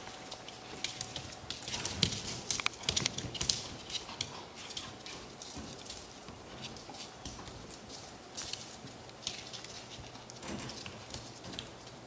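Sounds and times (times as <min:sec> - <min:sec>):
puppy claws clicking on tile: 0:00.2 - 0:12.0.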